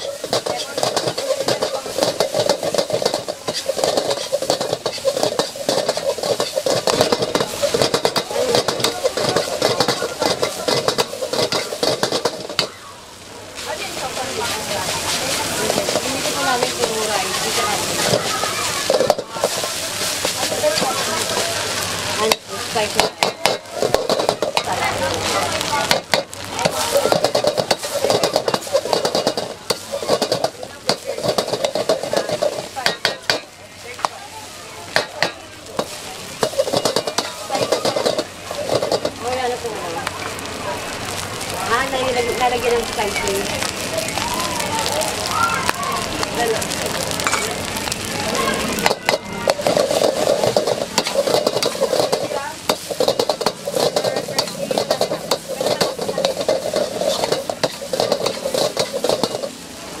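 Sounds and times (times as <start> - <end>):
metal spatula scraping wok: 0.0 - 12.7, 14.1 - 24.9, 25.6 - 34.0, 35.0 - 39.2, 48.7 - 59.6
food sizzling: 0.0 - 60.0.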